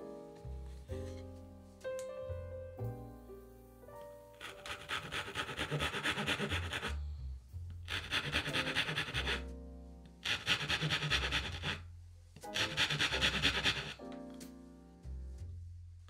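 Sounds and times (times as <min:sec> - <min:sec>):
soft background music: 0:00.0 - 0:16.0
hand saw cutting wood: 0:04.4 - 0:07.0, 0:07.9 - 0:09.5, 0:10.2 - 0:11.8, 0:12.4 - 0:14.0.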